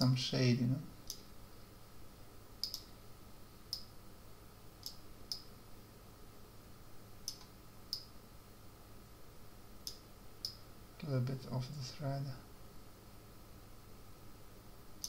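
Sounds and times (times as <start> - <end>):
faint steady hum: 0.0 - 15.0
computer mouse clicking: 2.6 - 2.9, 4.8 - 5.5, 7.2 - 8.1.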